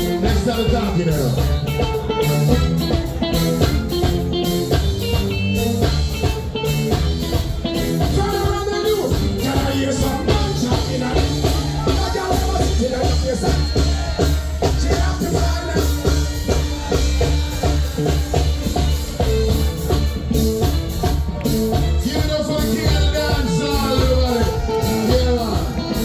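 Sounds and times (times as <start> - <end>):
live reggae band playing: 0.0 - 26.0
person singing: 7.8 - 18.9.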